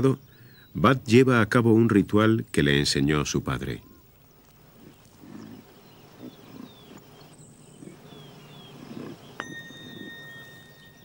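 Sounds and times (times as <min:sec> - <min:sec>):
faint high chirps: 0:03.7 - 0:11.0
reindeer grunting softly: 0:04.7 - 0:10.5.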